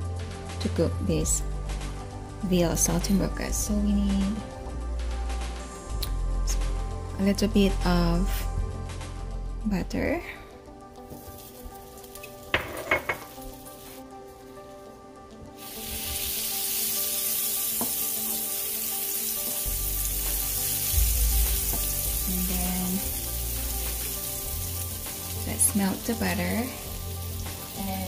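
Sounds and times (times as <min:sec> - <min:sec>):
butter sizzling in a frying pan: 0:11.1 - 0:14.0, 0:15.6 - 0:28.0.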